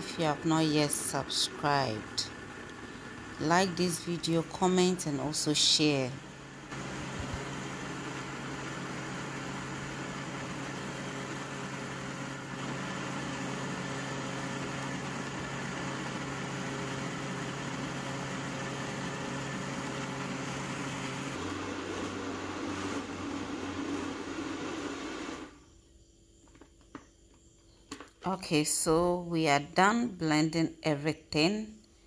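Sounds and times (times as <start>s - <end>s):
blender motor running: 6.2s - 25.6s.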